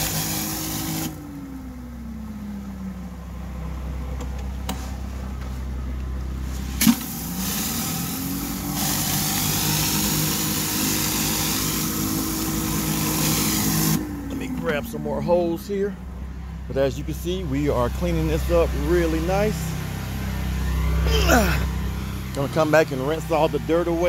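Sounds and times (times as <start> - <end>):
water spray hiss: 0.0 - 1.2, 6.4 - 14.0
pressure washer engine: 0.0 - 24.0.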